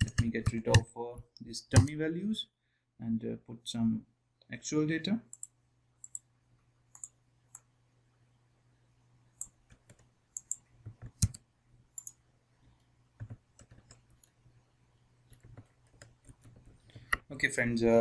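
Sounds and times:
keyboard and mouse clicks: 0.0 - 1.0, 1.7 - 1.9, 5.3 - 6.3, 6.9 - 7.7, 9.4 - 11.4, 12.0 - 12.2, 13.2 - 14.4, 15.3 - 17.3.

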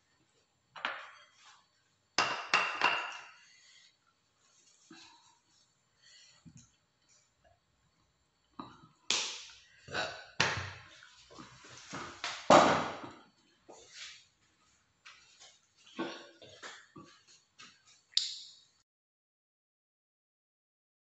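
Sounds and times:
dishes knocking and clattering: 2.2 - 3.4.

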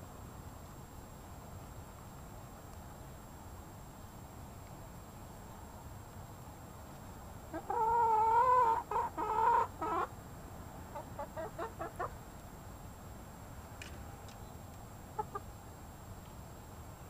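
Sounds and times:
hen calling: 7.5 - 10.1
hen clucking: 7.5 - 10.1, 10.9 - 12.1, 15.2 - 15.5.

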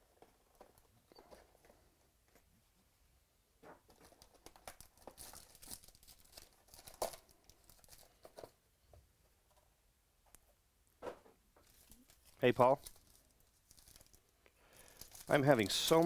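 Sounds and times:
foil packs crinkling: 4.6 - 8.2, 11.7 - 16.0.

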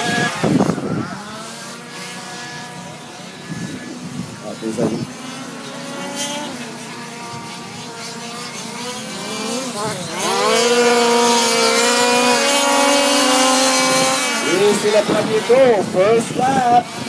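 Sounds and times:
small race car engines revving: 0.0 - 17.0.

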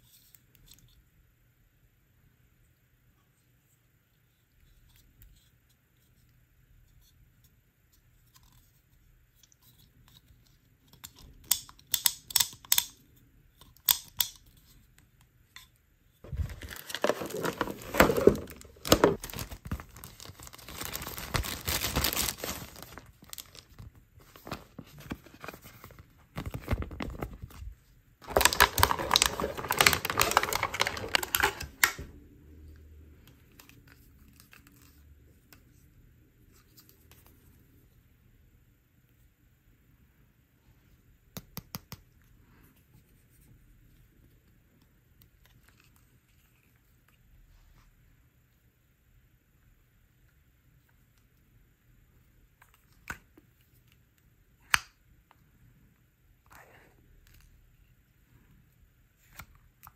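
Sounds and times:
plastic bags crinkling and tearing: 16.3 - 23.8, 28.2 - 32.0.

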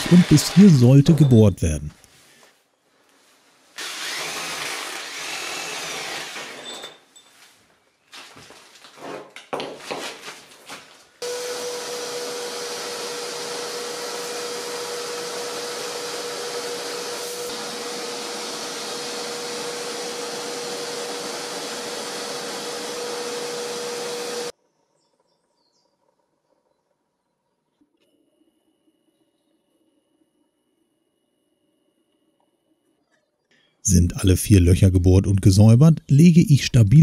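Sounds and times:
shop vacuum whining: 0.0 - 1.4, 3.8 - 7.0, 11.2 - 24.5.

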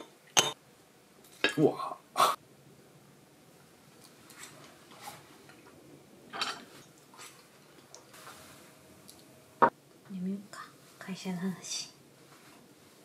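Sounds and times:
tableware and glass clinking: 0.0 - 0.6, 6.3 - 6.7.

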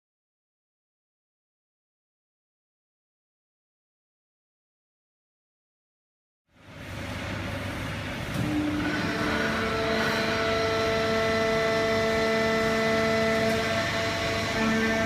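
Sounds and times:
baling press machine hum: 6.5 - 15.0
multi-pitch machine whine: 6.5 - 15.0.

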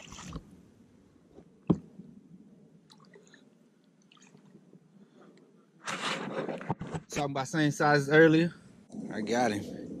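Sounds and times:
water drips and squelches: 0.0 - 0.5, 2.8 - 5.2.

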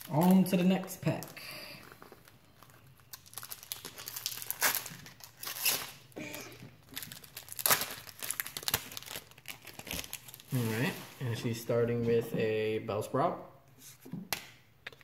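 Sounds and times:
wrapper tearing and crinkling: 0.0 - 11.4.

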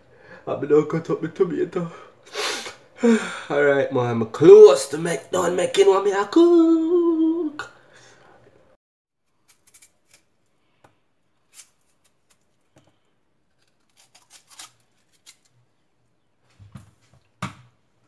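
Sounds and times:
knife cutting yam: 11.3 - 15.5.

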